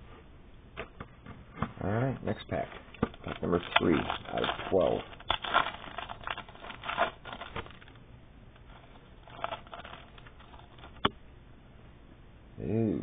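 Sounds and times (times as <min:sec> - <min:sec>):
cards rustling: 0:02.3 - 0:08.0, 0:08.6 - 0:11.1
wrapper crinkling and tearing: 0:03.0 - 0:08.0, 0:08.7 - 0:11.1.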